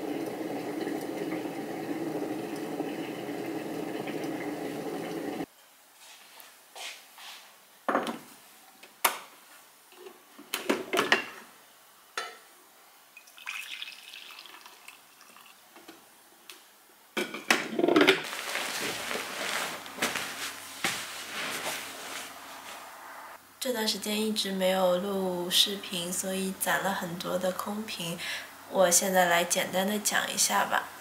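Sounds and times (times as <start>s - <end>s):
coffee pouring into mug: 0.0s - 5.5s, 13.2s - 15.6s
dense rustling: 18.2s - 23.0s.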